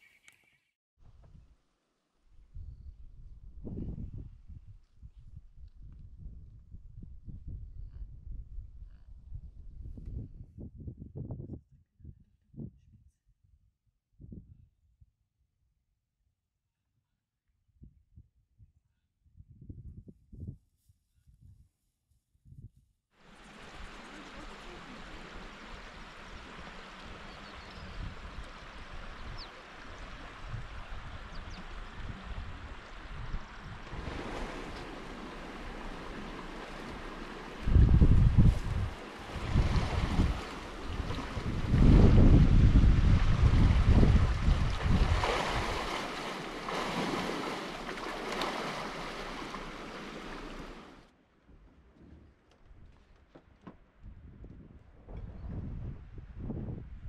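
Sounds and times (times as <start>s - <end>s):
wind noise on microphone: 1.0s - 1.6s, 2.3s - 15.2s, 17.7s - 53.1s, 54.0s - 57.0s
rushing outdoor noise with buffeting: 23.2s - 51.0s.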